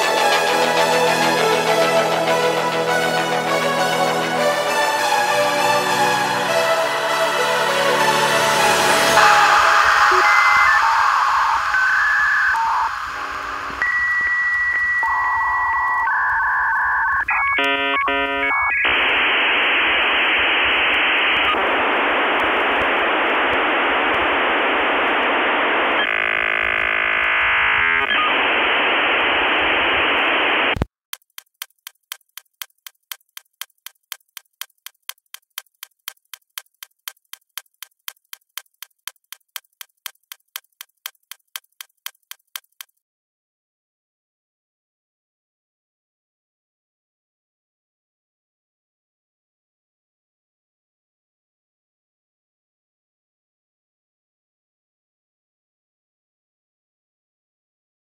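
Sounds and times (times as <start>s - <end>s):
electronic beeps and tones: 9.2s - 13.1s, 13.8s - 18.9s
steady ticking: 31.1s - 43.0s.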